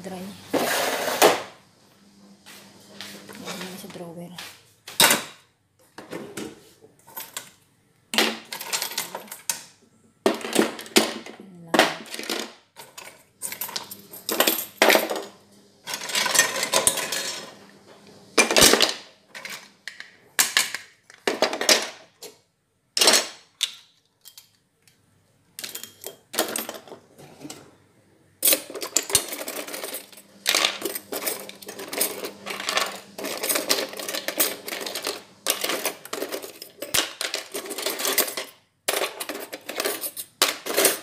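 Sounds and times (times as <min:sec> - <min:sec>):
cooking utensils clattering in drawer: 0:00.6 - 0:01.5, 0:10.3 - 0:17.6, 0:18.4 - 0:22.4, 0:25.6 - 0:27.8, 0:28.4 - 0:41.0.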